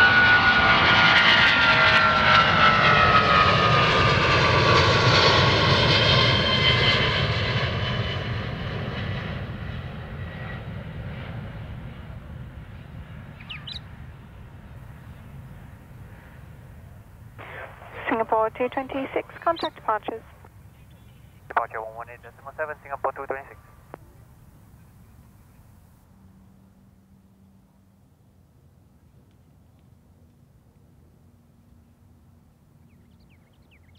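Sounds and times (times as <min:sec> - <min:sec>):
jet engines roaring: 0:00.0 - 0:25.4.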